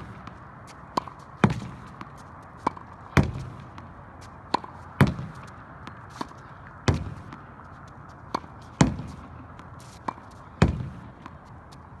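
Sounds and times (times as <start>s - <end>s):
racket striking tennis ball: 0.0s - 12.0s
ball thumping against wall: 6.9s - 7.4s.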